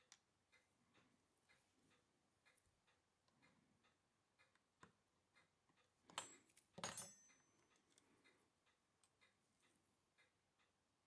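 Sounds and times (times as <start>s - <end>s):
faint clock ticking: 0.0s - 11.0s
small metal tools clinking: 6.1s - 8.0s.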